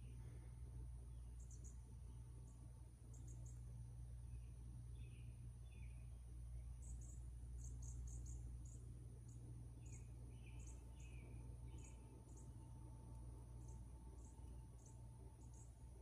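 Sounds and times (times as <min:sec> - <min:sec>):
low steady hum: 0:00.0 - 0:16.0
insects chirping: 0:01.3 - 0:16.0.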